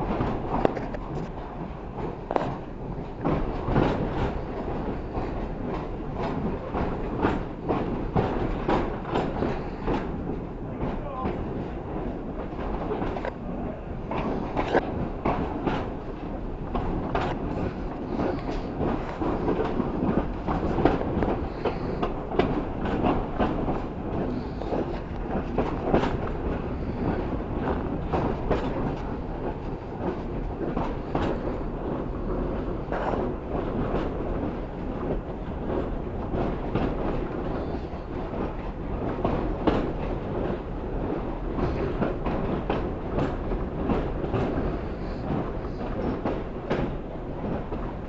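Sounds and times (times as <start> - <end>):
train carriage rumbling on track: 0.0 - 48.0
wheels clicking on rails: 0.0 - 48.0.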